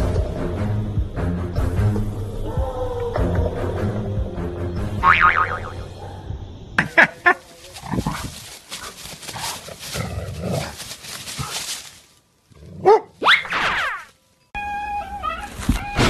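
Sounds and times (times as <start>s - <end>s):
dog barking: 12.8s - 13.3s.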